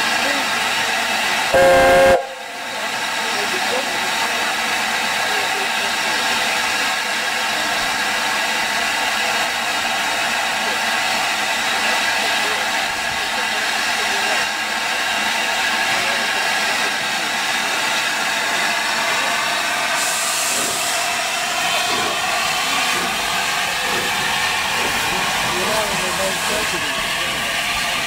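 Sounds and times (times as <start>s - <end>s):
steam locomotive hissing steam: 0.0s - 28.0s
sharp high steam hiss: 19.8s - 27.5s.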